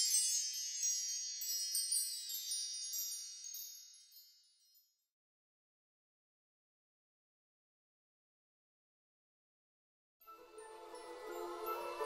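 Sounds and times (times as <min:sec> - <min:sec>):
high tinkling chimes: 0:00.0 - 0:05.1, 0:10.2 - 0:12.0.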